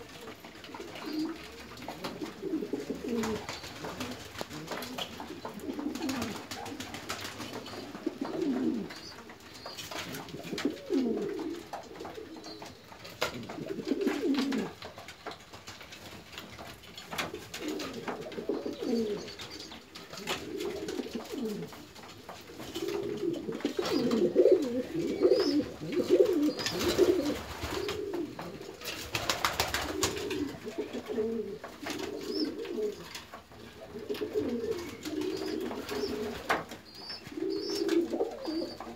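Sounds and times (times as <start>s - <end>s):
pigeons cooing: 0.0s - 15.0s, 17.1s - 38.9s
birds scuffling: 0.0s - 38.9s
wings fluttering: 0.8s - 21.8s, 22.4s - 38.9s.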